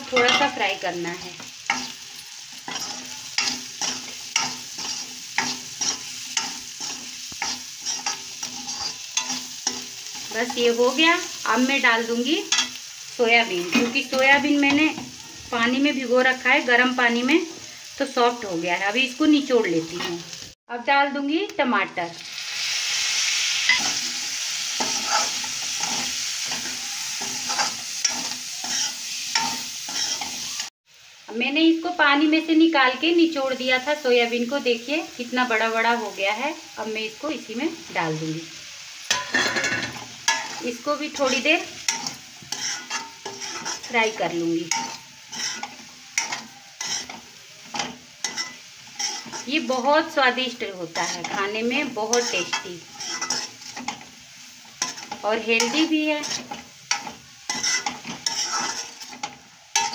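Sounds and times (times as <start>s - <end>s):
light frying sizzle: 0.0s - 59.9s
spatula scraping a pan: 0.1s - 11.4s, 23.6s - 30.6s, 39.1s - 49.9s, 50.9s - 59.9s.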